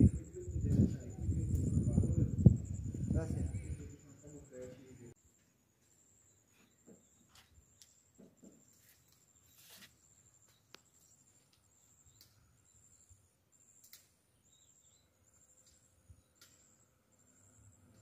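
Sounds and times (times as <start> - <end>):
faint insect chirping: 0.0 - 18.0
faint sharp clicks: 11.5 - 12.4, 13.8 - 14.1.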